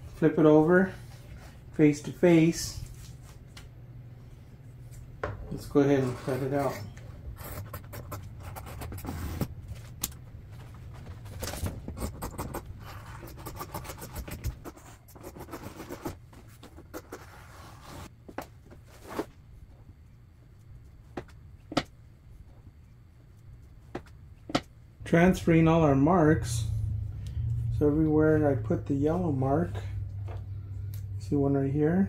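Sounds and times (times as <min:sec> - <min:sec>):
scissors cutting vinyl: 0:11.4 - 0:18.1.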